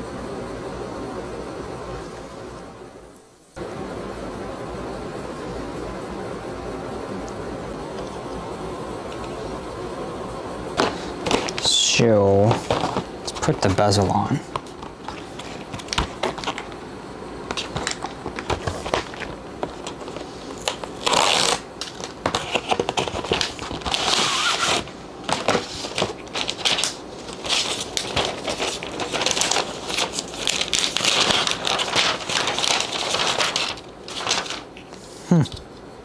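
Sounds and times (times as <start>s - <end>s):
paper crinkling and rustling: 10.8s - 16.8s, 17.4s - 35.1s.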